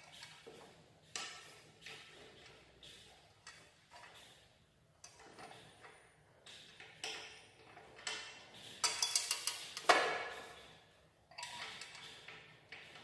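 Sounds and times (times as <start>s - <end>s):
metal parts clicking and knocking: 6.6s - 10.0s, 11.3s - 13.0s.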